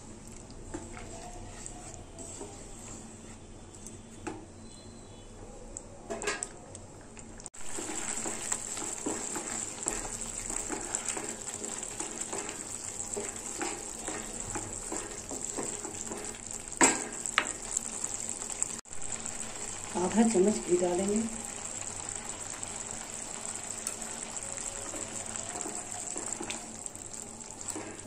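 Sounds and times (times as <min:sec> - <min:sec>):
steady sizzle: 0:00.0 - 0:28.0
wooden spatula scraping a pan: 0:00.7 - 0:04.1, 0:07.6 - 0:17.8, 0:23.8 - 0:28.0.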